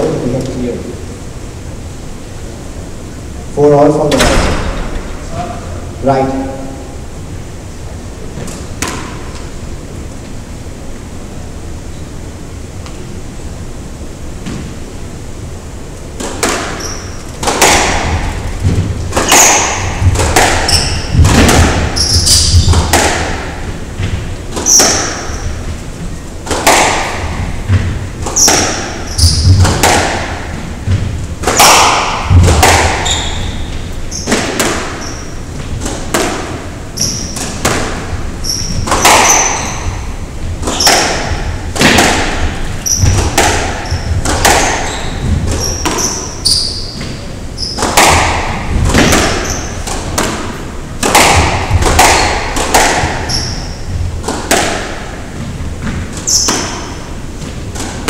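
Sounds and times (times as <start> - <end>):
squash ball cracking off rackets: 8.4 - 9.5, 16.1 - 58.0
ball thudding against walls: 16.2 - 58.0
shoes squeaking on wooden floor: 16.7 - 17.4, 18.1 - 23.0, 23.7 - 26.3, 27.2 - 29.9, 30.5 - 35.8, 36.8 - 37.6, 38.3 - 41.3, 42.6 - 47.9, 48.9 - 49.8, 53.2 - 54.0, 55.3 - 57.6.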